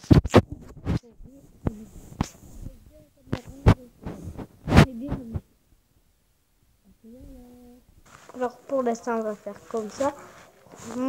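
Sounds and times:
child humming faintly: 0:01.0 - 0:05.4, 0:06.9 - 0:07.9, 0:09.9 - 0:11.0.

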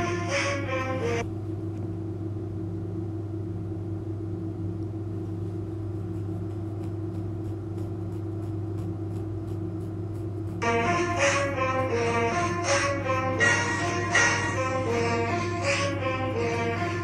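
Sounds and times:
low music drone: 0:00.0 - 0:01.3, 0:10.5 - 0:17.0.

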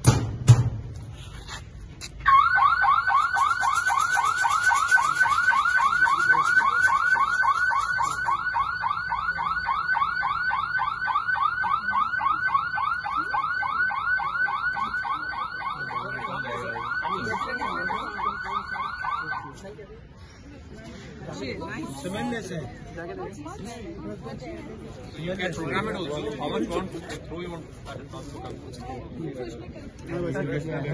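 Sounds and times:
fast warbling siren: 0:02.2 - 0:19.6.

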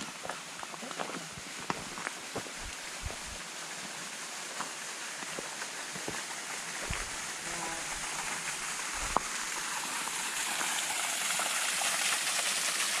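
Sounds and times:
small waterfall rushing: 0:00.0 - 0:13.0.

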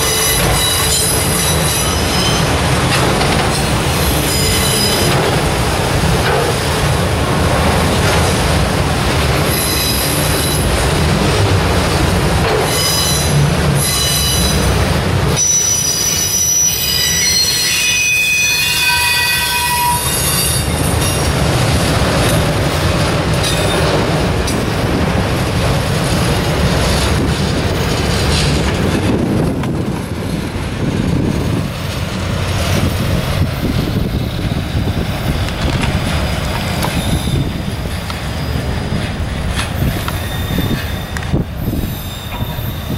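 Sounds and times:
high wheel squeals: 0:00.0 - 0:02.6, 0:04.0 - 0:05.2, 0:09.5 - 0:10.7, 0:12.7 - 0:14.7, 0:15.4 - 0:21.2, 0:36.8 - 0:37.7, 0:39.8 - 0:42.9
freight train rumbling past: 0:00.0 - 0:42.9.

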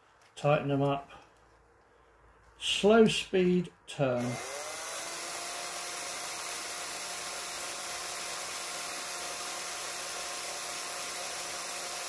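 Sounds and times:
cordless drill motor whine: 0:04.2 - 0:12.0.

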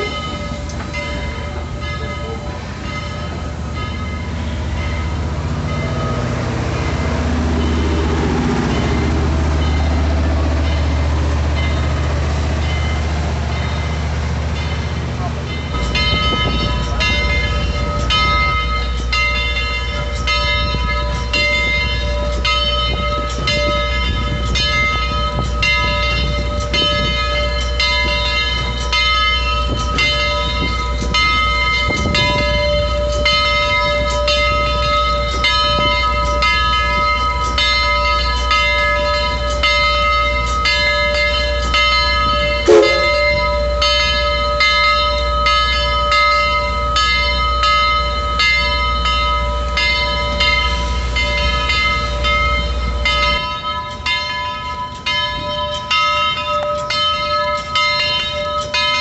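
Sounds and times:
locomotive bell ringing: 0:00.0 - 0:59.0
moving train rumble: 0:00.0 - 0:59.0.

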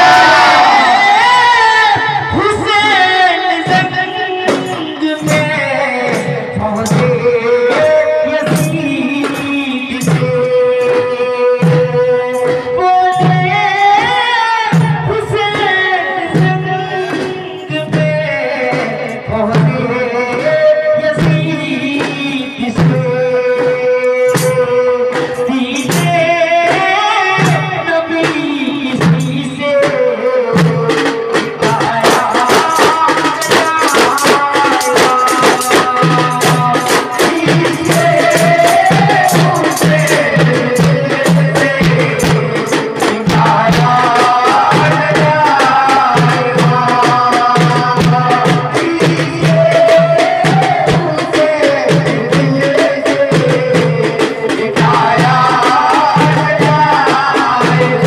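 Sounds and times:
frame drums beating: 0:00.0 - 0:58.0
man singing through a microphone: 0:00.0 - 0:58.0.

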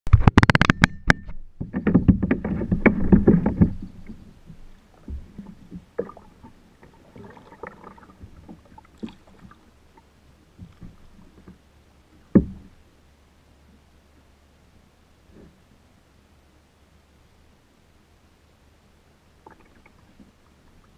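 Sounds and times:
paddling on calm water: 0:00.1 - 0:20.9
light taps and splashes: 0:01.7 - 0:12.8.

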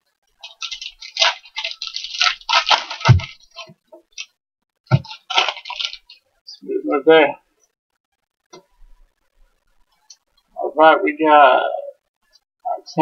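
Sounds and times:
foil wrappers crinkling: 0:00.4 - 0:04.3, 0:04.9 - 0:06.2
packs torn open: 0:00.4 - 0:04.3, 0:04.9 - 0:06.2.

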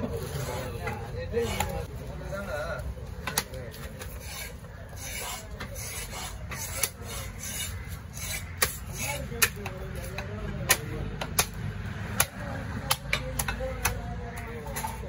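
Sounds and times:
knife rasping through flesh and bone: 0:04.1 - 0:09.5.

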